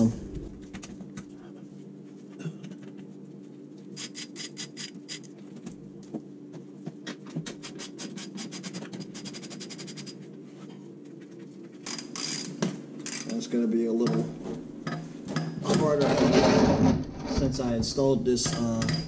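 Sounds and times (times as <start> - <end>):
steady low hum: 0.0 - 19.0
ratchet wrench clicking: 4.0 - 5.3, 11.8 - 13.4.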